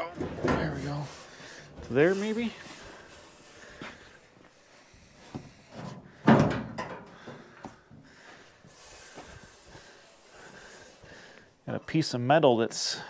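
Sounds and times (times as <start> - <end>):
metal knocks and scrapes: 0.0 - 2.2.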